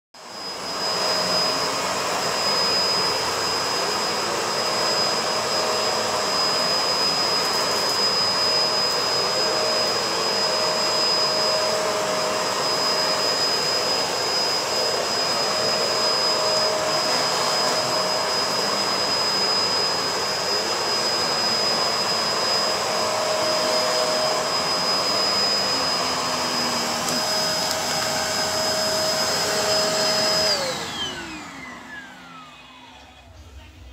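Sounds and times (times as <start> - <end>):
vacuum cleaner running on carpet: 0.2 - 33.9.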